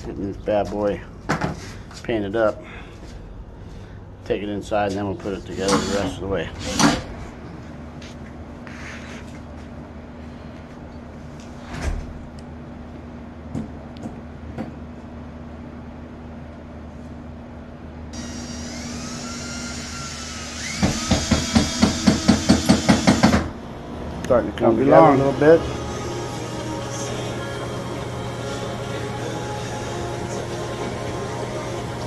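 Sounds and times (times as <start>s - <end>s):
low steady hum: 23.5s - 32.0s.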